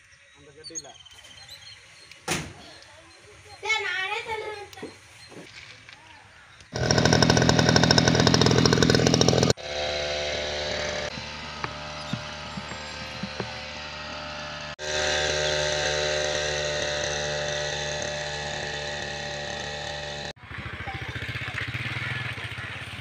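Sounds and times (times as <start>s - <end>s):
tractor engine idling: 6.7s - 23.0s
two-stroke sprayer engine running: 6.7s - 23.0s.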